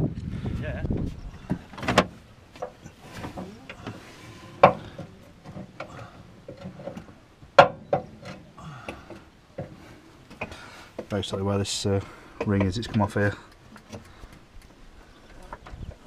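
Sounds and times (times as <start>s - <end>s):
knocks and clicks on exhaust pipe: 7.6s - 9.0s.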